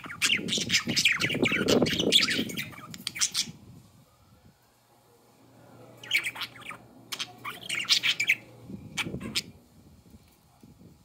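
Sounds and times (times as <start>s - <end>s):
budgies chirping and chattering: 0.0s - 3.6s, 6.0s - 9.6s.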